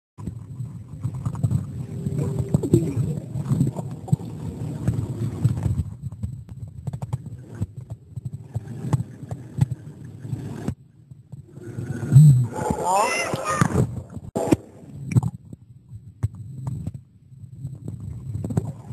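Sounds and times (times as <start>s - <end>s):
underwater churning rumble: 0.2s - 15.1s.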